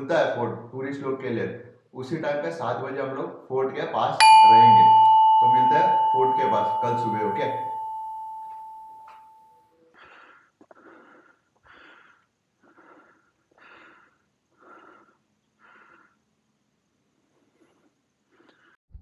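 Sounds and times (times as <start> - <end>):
bell chime: 4.2 - 9.4
person breathing in puffs: 10.0 - 16.3.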